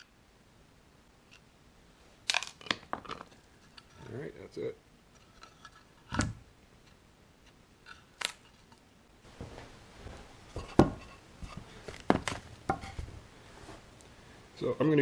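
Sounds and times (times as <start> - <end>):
wooden board knocks: 10.6 - 11.0.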